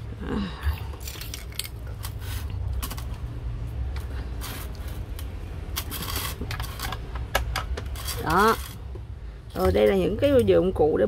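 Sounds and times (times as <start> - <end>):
rustling scrapes: 4.1 - 7.0, 7.8 - 8.8
plastic parts clicking and knocking: 5.1 - 10.5.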